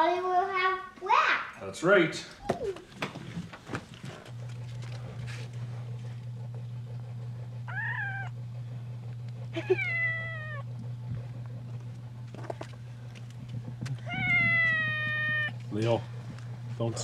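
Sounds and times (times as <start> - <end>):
cat meowing: 7.7 - 8.4, 9.6 - 10.7, 14.0 - 15.6.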